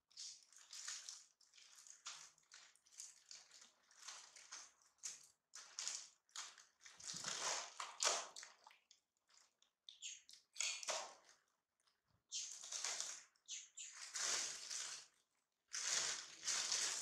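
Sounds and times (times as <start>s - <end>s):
plastic bag crinkling: 12.6s - 17.0s.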